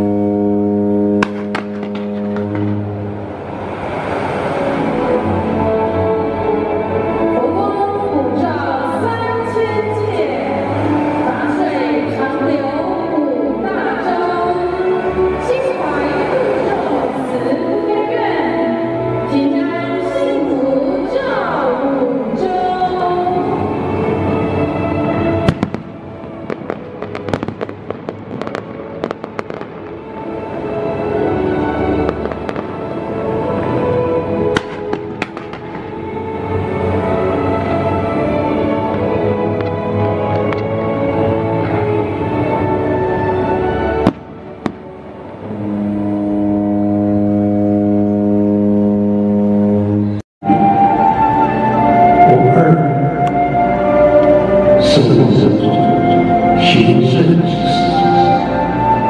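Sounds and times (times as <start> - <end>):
low droning tone: 0.0 - 6.8, 43.8 - 55.1
firework cracks and pops: 1.2 - 2.8, 25.5 - 30.1, 32.1 - 32.8, 34.5 - 36.0
firework bang: 1.2 - 2.9, 25.4 - 30.0, 34.5 - 36.1, 44.0 - 44.9
show music: 22.5 - 47.3, 50.4 - 59.0
music with held notes: 50.4 - 59.0.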